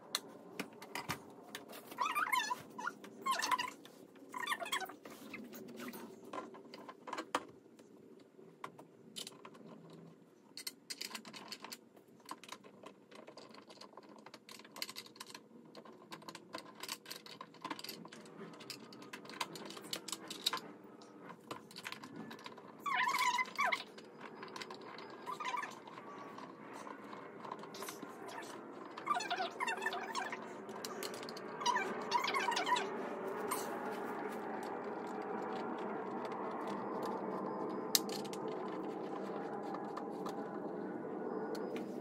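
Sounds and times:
dog whimpering: 2.0s - 3.7s, 28.3s - 30.4s, 31.6s - 32.9s
chair parts clicking and rattling: 9.1s - 20.7s, 21.3s - 40.7s.

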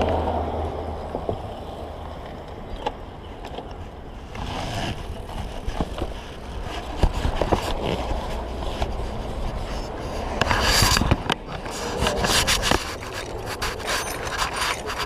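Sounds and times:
road traffic passing: 0.0s - 15.0s
wind rumble on microphone: 0.0s - 15.0s
rubber inner tube clicks and rustles: 4.4s - 9.6s.

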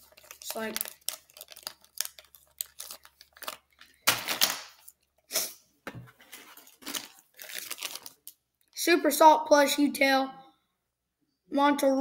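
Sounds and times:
plastic bag rustling: 0.0s - 5.0s, 6.2s - 8.3s
plastic bag clicks and crinkles: 0.0s - 5.1s, 6.6s - 8.4s.

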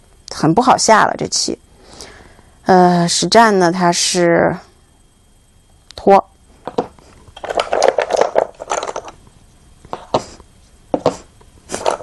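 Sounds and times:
game stones clattering on board: 7.4s - 9.2s.

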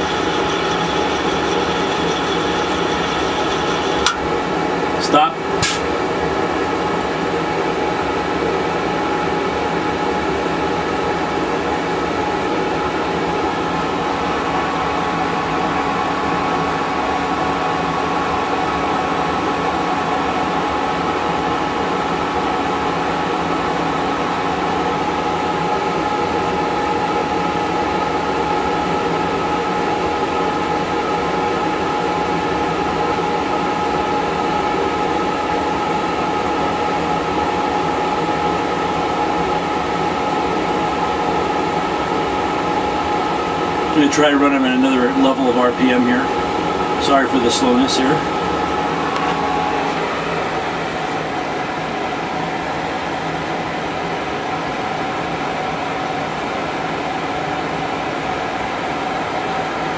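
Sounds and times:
lathe running: 0.0s - 5.8s.

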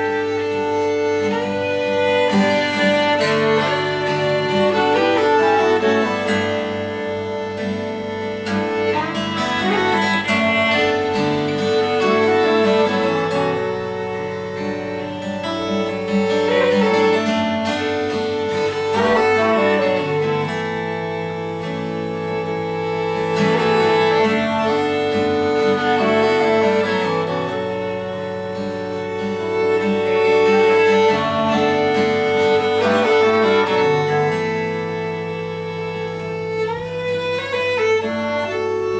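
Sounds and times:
acoustic guitar accompaniment: 0.0s - 38.9s
bowed violin: 0.0s - 38.9s
clarinet: 0.0s - 38.9s.

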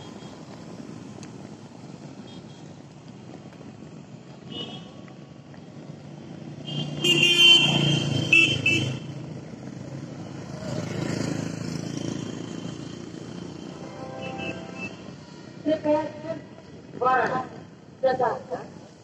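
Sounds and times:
road traffic passing: 0.0s - 19.0s
vehicle horn: 6.7s - 9.0s, 13.6s - 15.2s.

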